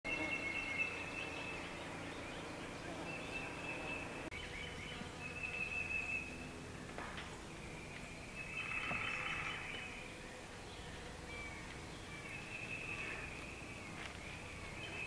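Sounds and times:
faint chirps: 0:07.4 - 0:15.0.

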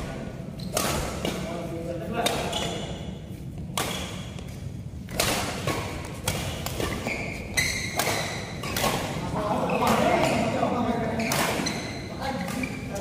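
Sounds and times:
rackets hitting shuttlecock: 0:00.6 - 0:02.9, 0:03.5 - 0:10.5, 0:11.2 - 0:13.0
shoe squeak: 0:02.4 - 0:03.0, 0:06.8 - 0:08.9, 0:09.6 - 0:12.9.

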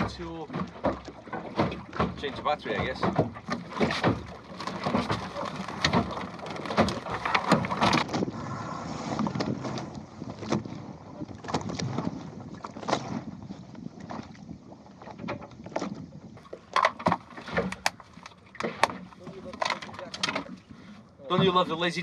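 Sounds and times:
irregular knocks and clicks: 0:00.0 - 0:08.1
water washing along hull: 0:00.0 - 0:22.0
wind on microphone: 0:06.8 - 0:16.4.

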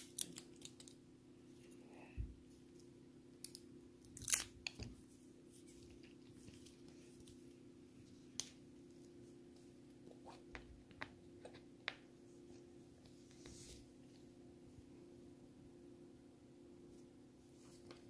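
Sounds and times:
paper candy wrappers crinkling: 0:00.0 - 0:01.0.

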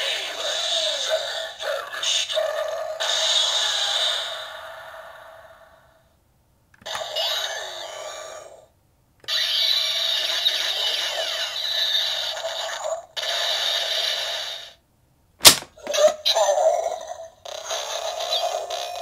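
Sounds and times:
sharp click: 0:15.4 - 0:15.7
toy beam-gun shot effect: 0:15.4 - 0:15.7.

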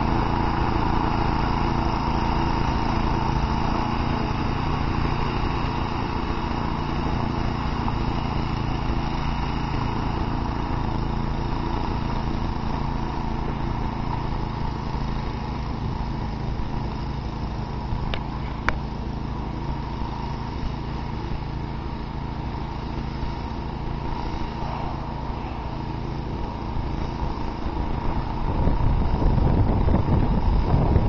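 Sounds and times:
snowblower engine running: 0:00.0 - 0:31.0.

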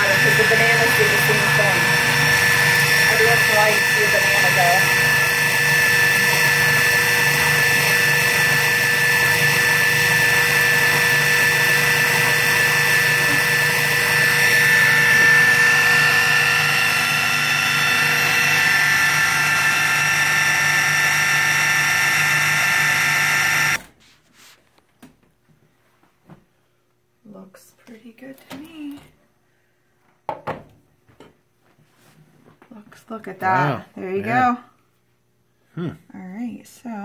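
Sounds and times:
food processor motor whirring: 0:00.0 - 0:23.9.

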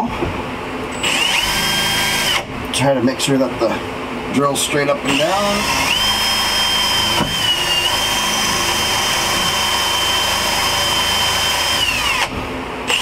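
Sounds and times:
power drill boring through fiberglass: 0:01.0 - 0:02.5, 0:05.1 - 0:12.3.

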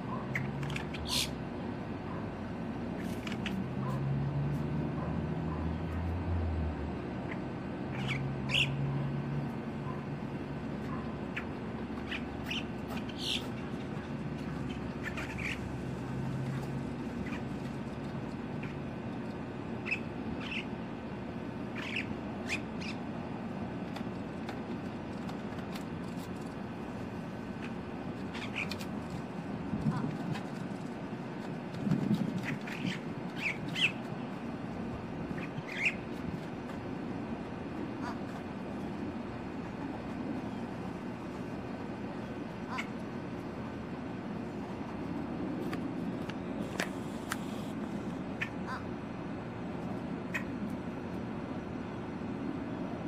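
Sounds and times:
bird squealing: 0:00.1 - 0:01.4, 0:07.3 - 0:08.8, 0:10.9 - 0:13.6, 0:14.5 - 0:15.7, 0:19.8 - 0:20.7, 0:21.7 - 0:23.0, 0:28.3 - 0:28.8, 0:32.4 - 0:34.0, 0:35.3 - 0:36.0, 0:42.6 - 0:43.0.

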